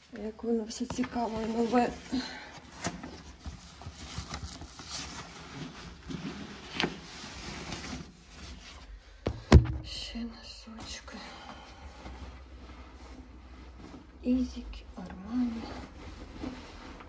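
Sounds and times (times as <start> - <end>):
loud thump: 9.2 - 10.0.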